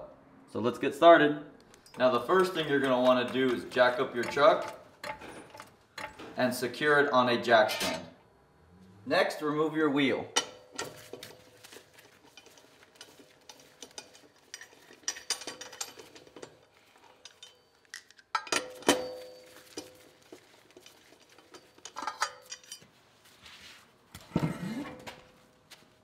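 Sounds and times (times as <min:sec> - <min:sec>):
lug wrench clinking on nuts: 0:01.6 - 0:06.5, 0:10.3 - 0:22.9
sharp ringing metallic clank: 0:18.5 - 0:19.8.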